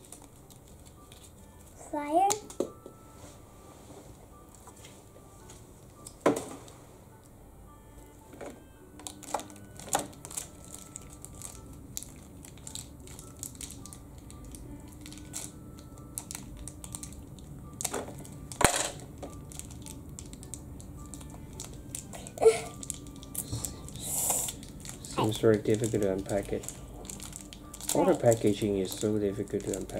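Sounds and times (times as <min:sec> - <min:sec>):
plastic wrapper crinkling: 0:00.0 - 0:01.4, 0:09.0 - 0:18.6, 0:19.2 - 0:29.9.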